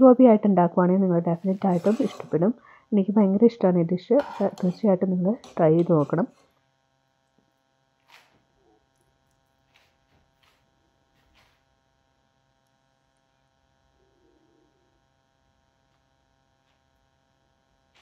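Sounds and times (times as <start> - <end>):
faint electrical hum: 0.0 - 18.0.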